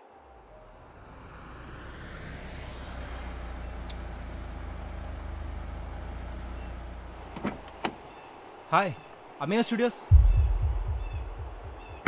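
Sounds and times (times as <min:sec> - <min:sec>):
car driving across grass: 0:00.6 - 0:08.3.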